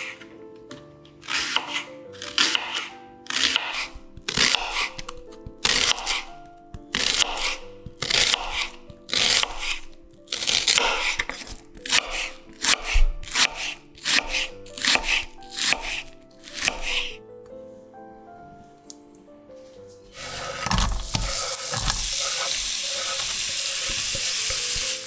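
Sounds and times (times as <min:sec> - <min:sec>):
knife slicing onion: 0:00.0 - 0:00.3, 0:01.2 - 0:17.2, 0:20.2 - 0:25.0
soft background music: 0:00.0 - 0:25.0.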